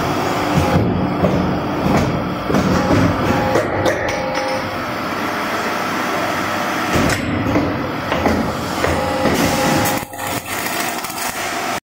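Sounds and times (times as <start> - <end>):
steady machine hum: 0.0 - 11.8
machine clamps clunking: 0.5 - 4.8
welding: 9.2 - 11.8.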